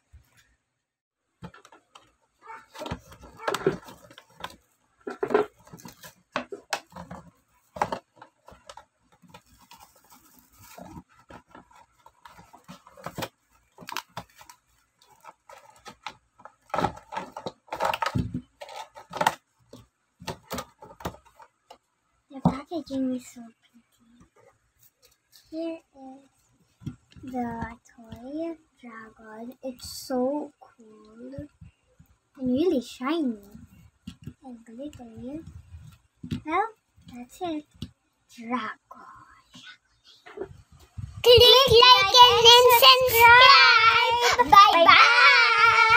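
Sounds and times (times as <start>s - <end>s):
plastic packaging crinkling: 2.4s - 19.8s.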